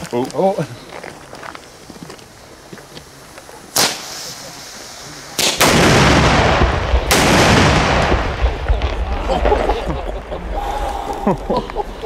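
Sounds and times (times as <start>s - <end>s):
firework explosions: 2.3s - 12.0s
deep rumble: 5.7s - 12.0s.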